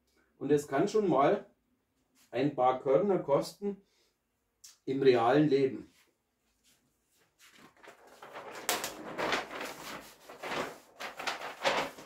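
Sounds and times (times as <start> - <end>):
paper sheets rustling: 7.2 - 12.0.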